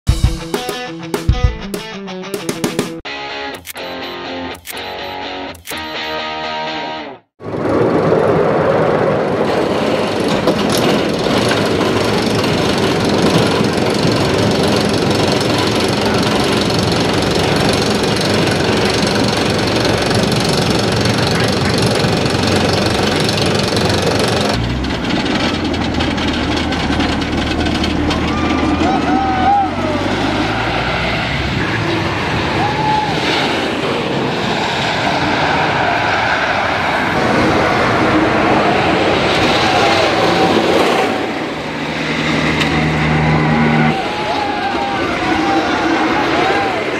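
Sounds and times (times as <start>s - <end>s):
roller coaster lift chain clatter: 7.4s - 30.0s, 37.1s - 46.9s.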